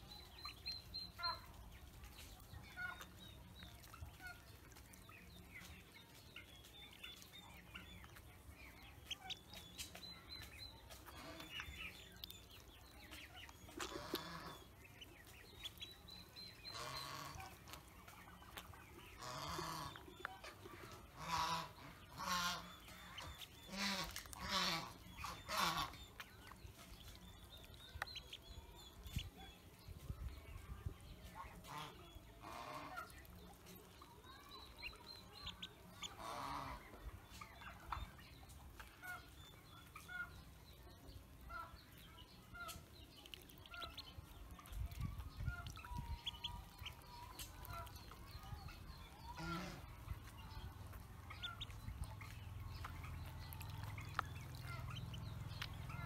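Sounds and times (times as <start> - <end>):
ducklings peeping: 0.0 - 56.0
harsh duckling calls: 15.6 - 18.3, 19.0 - 20.5, 21.1 - 26.2, 34.4 - 37.0, 45.3 - 50.6, 51.2 - 56.0.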